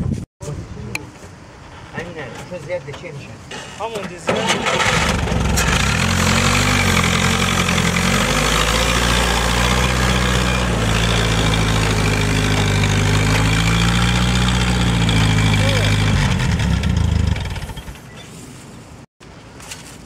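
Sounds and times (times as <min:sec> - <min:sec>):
jeep engine running: 0:04.4 - 0:18.1.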